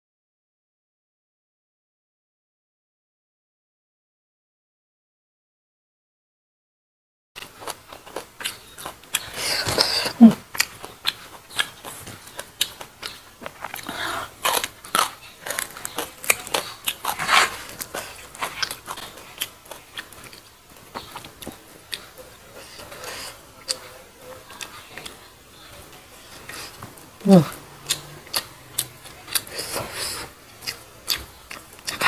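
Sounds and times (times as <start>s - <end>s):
person chewing and crunching food: 7.4s - 32.0s.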